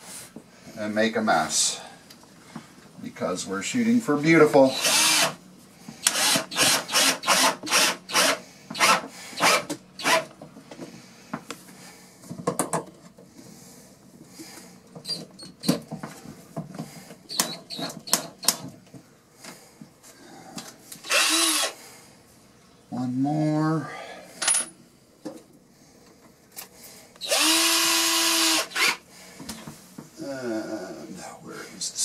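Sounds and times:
cordless drill bursts: 4.7 - 5.4, 6.0 - 10.3, 21.0 - 21.8, 27.2 - 29.0.

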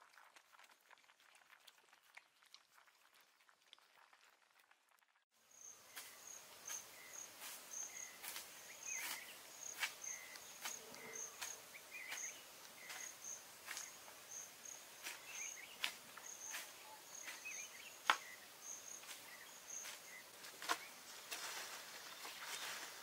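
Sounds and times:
insects chirping: 5.4 - 23.0
faint bird chirps: 5.5 - 22.9.

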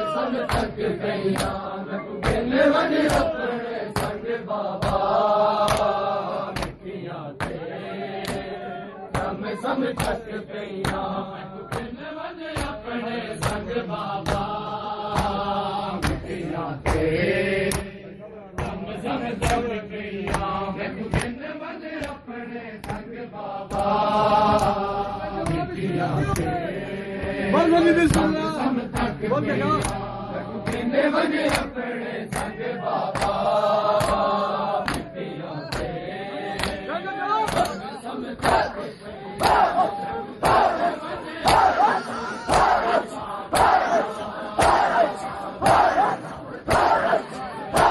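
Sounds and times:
men chanting a lament in unison: 0.0 - 47.9
hands slapping chests: 0.4 - 0.7, 1.3 - 1.6, 2.2 - 4.2, 4.8 - 6.8, 7.4 - 7.6, 8.2 - 8.5, 9.1 - 10.2, 10.8 - 11.1, 11.7 - 12.8, 14.2 - 15.4, 16.0 - 16.2, 17.7 - 17.9, 19.4 - 20.5, 21.1 - 21.4, 22.8 - 23.1, 30.7 - 31.7, 32.3 - 35.1, 35.7 - 36.0, 36.6 - 36.8, 37.4 - 37.8, 38.4 - 38.7, 39.4 - 47.2.

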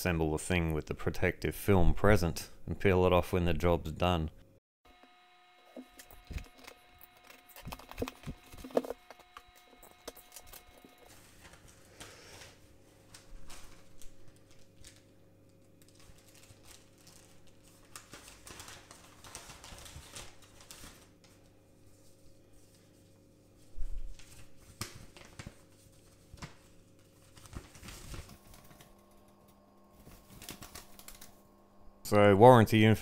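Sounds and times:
tissue paper rustling: 9.7 - 15.0, 15.8 - 29.0, 29.9 - 31.4.

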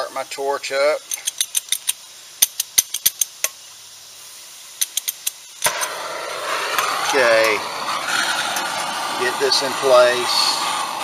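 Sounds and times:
torch flame hissing: 0.0 - 11.0
torch igniter clicks: 4.8 - 6.0.

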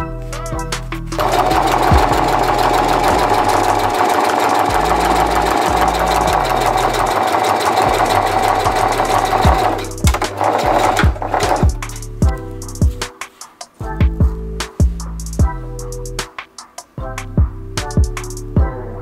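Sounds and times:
sewing machine stitching: 1.2 - 11.9.

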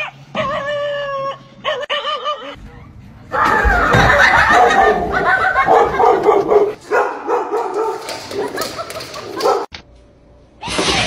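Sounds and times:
dog barking and whining: 0.0 - 2.6, 4.4 - 8.6.

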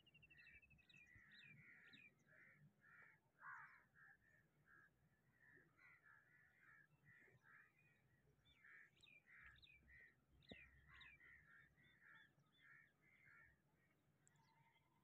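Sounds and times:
distant bird calls: 0.0 - 15.0.

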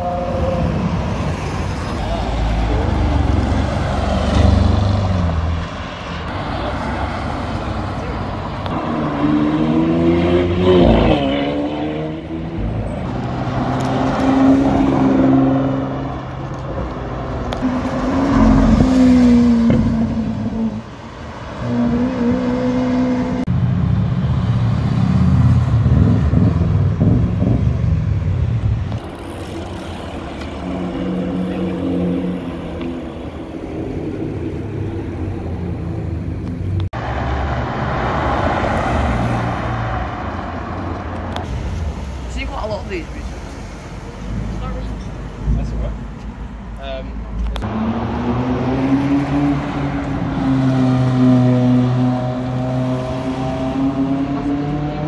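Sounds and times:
car passing: 0.0 - 55.0
sports car revving and accelerating: 8.6 - 20.9, 21.5 - 23.5, 30.1 - 36.2, 47.6 - 55.0.

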